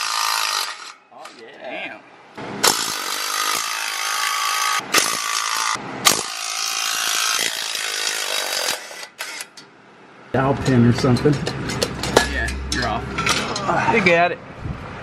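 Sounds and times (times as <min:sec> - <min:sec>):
electric ratchet spinning: 0:02.6 - 0:09.5.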